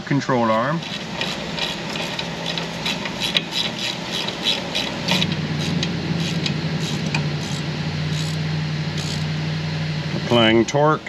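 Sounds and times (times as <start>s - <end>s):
steady low hum: 0.0s - 11.0s
ratcheting wrench clicking: 0.8s - 8.4s, 9.0s - 9.3s.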